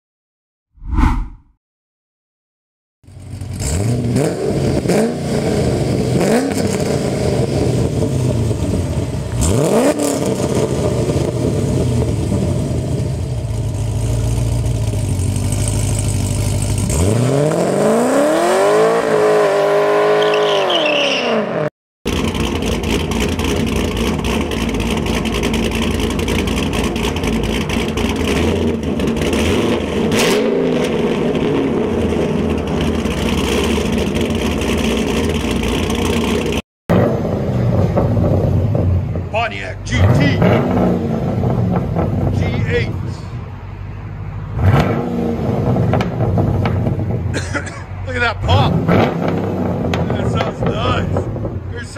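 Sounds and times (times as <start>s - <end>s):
car engine revving: 3.1s - 43.0s, 44.4s - 47.4s, 48.1s - 51.9s
car accelerating hard: 3.3s - 13.2s, 13.8s - 39.2s, 39.9s - 42.4s, 44.6s - 47.5s, 48.4s - 51.7s
car engine idling: 11.9s - 16.8s, 22.1s - 30.0s, 31.2s - 36.6s.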